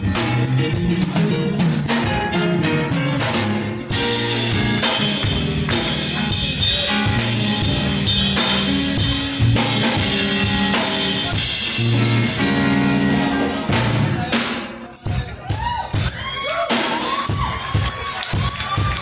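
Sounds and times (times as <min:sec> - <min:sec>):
electric guitar: 0:00.0 - 0:14.6
bass guitar: 0:00.0 - 0:19.0
drum kit beat with cymbals: 0:00.0 - 0:19.0
congas: 0:13.6 - 0:19.0.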